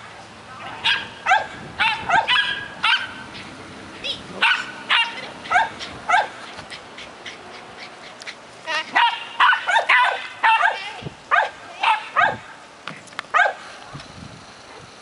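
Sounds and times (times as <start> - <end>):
dog barking: 0.6 - 3.2, 4.4 - 6.4, 8.9 - 12.5, 13.3 - 13.6.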